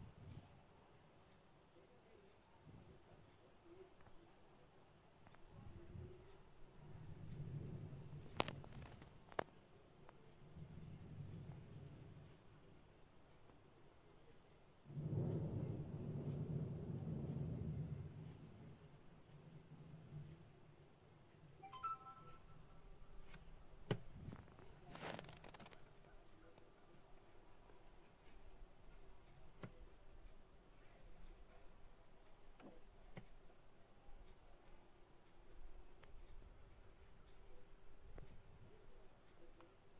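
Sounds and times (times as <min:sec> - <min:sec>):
crickets chirping: 0:00.0 - 0:39.9
soft low rumbles: 0:05.3 - 0:12.9, 0:14.9 - 0:21.6.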